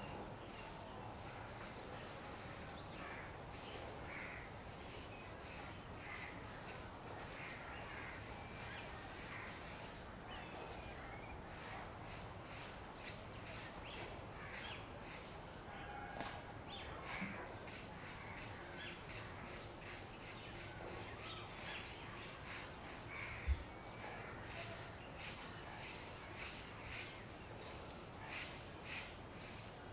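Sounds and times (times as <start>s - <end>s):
small birds chirping: 0.0s - 15.4s, 16.7s - 29.9s
steady hiss: 0.0s - 29.9s
crows cawing: 23.1s - 23.6s.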